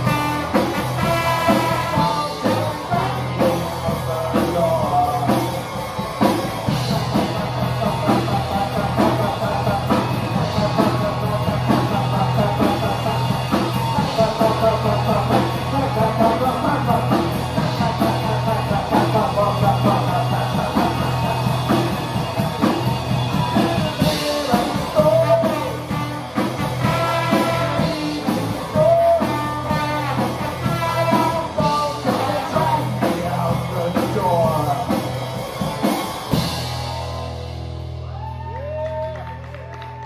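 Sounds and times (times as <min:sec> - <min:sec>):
trombone: 0:00.0 - 0:03.6, 0:25.0 - 0:28.2, 0:29.3 - 0:32.5
man singing: 0:00.0 - 0:05.9, 0:06.9 - 0:22.7, 0:23.4 - 0:35.2
drum kit: 0:00.0 - 0:40.0
electric guitar: 0:00.0 - 0:40.0.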